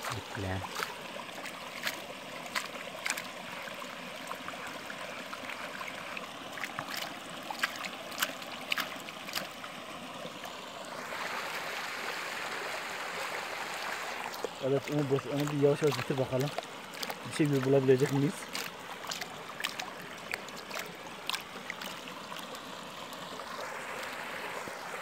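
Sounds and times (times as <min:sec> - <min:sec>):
small sharp splashes and clicks: 0:00.0 - 0:10.6, 0:14.1 - 0:24.3
stream water running: 0:00.0 - 0:25.0.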